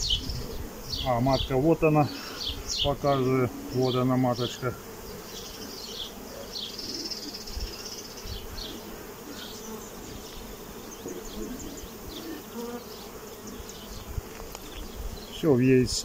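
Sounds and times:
honeybees humming: 0:00.0 - 0:16.0.

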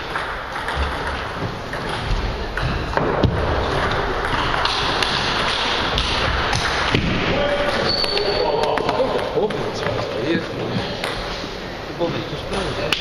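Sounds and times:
noisy hall background: 0:00.0 - 0:13.0.

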